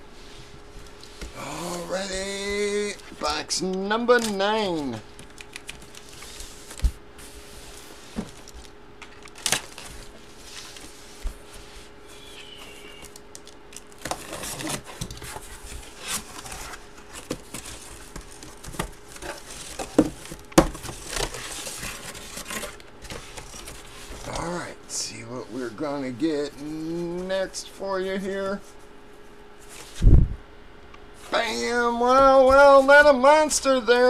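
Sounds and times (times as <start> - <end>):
cardboard rustling and scraping: 4.6 - 24.4, 28.2 - 30.2.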